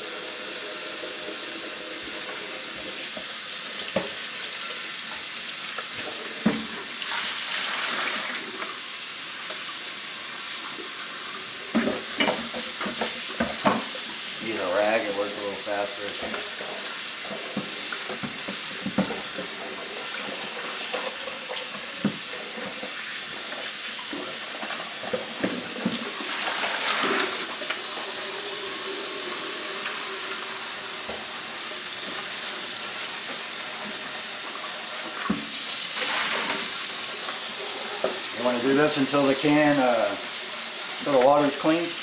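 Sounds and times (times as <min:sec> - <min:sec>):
faucet running into metal sink: 0:00.0 - 0:42.0
rag scrubbing inside can: 0:11.9 - 0:28.2, 0:35.1 - 0:40.2.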